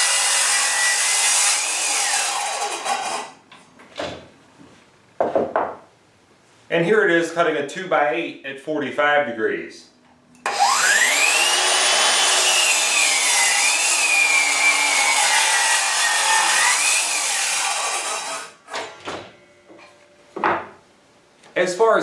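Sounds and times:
miter saw cutting wood: 0.0 - 3.4, 10.4 - 18.6
knocks: 5.2 - 5.8.

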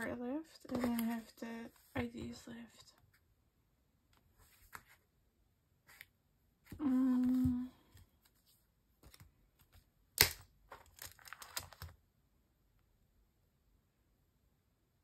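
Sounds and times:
plastic sleeves crinkling: 0.0 - 2.0, 9.0 - 12.0
person humming: 6.7 - 7.9.

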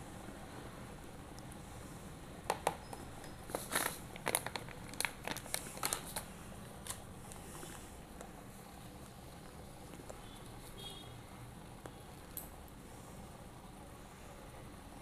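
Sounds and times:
plastic packet crinkling: 3.5 - 7.0.

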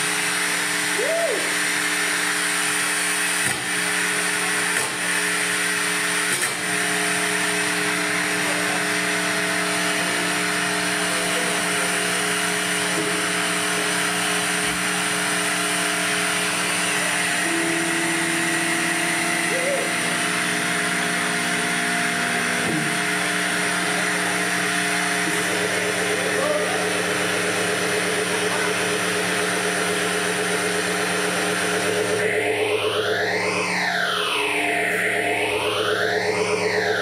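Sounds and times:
distorted guitar noise drone: 0.0 - 37.0.

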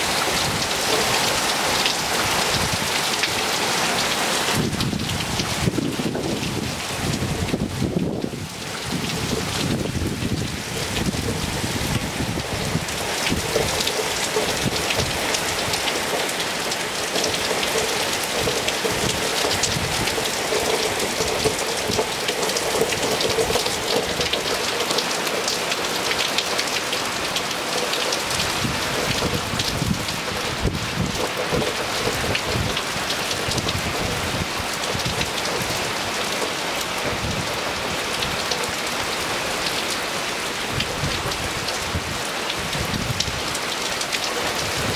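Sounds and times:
hard rain on water and stone: 0.0 - 44.9.

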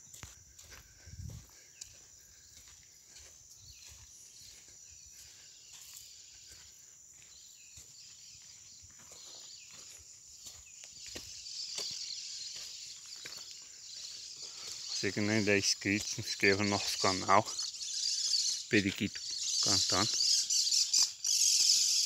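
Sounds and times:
footsteps on leaf litter: 0.0 - 15.3
insect drone: 0.0 - 22.0.

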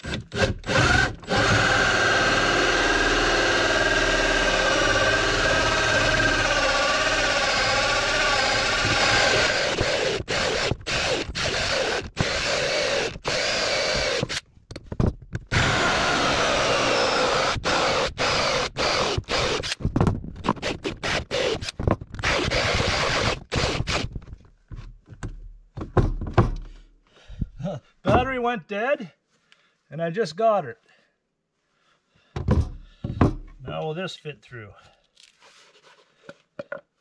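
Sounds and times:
cordless drill boring wood: 0.0 - 14.4, 15.5 - 24.2.

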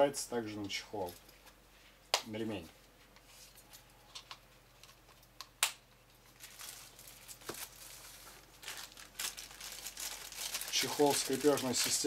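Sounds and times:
plastic bag crinkling: 6.2 - 12.0.

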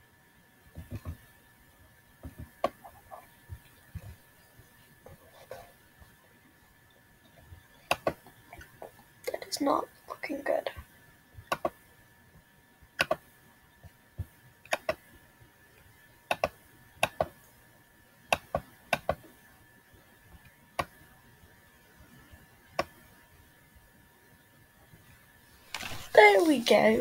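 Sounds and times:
computer mouse clicking: 7.8 - 8.7, 11.4 - 11.8, 13.0 - 13.2, 14.7 - 15.0, 16.3 - 17.4, 18.3 - 19.2, 20.8 - 21.0, 22.7 - 23.0.

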